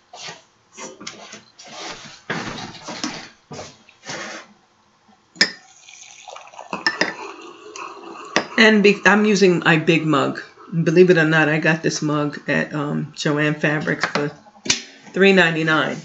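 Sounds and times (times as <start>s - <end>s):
spoon clinking in a mug: 5.4s - 7.2s
water pouring into a mug: 5.4s - 10.6s.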